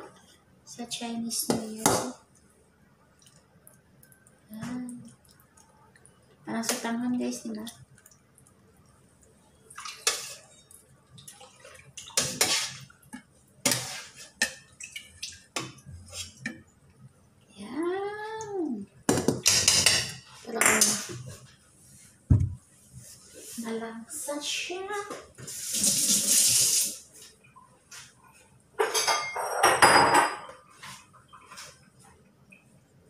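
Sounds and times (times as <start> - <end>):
dishes clinking on counter: 28.8 - 30.7.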